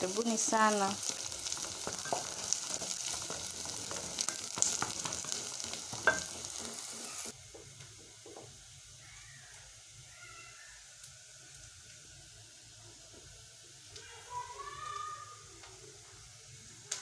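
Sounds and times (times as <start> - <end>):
onions sizzling in hot oil: 0.0 - 17.0
wooden spoon stirring: 0.1 - 8.5
spoon knocking against pot: 4.6 - 6.8.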